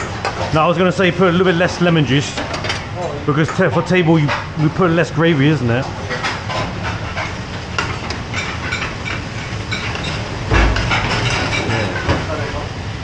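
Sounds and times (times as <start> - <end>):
ladles clinking on metal pans: 2.3 - 12.4
heavy low thump: 10.5 - 11.1.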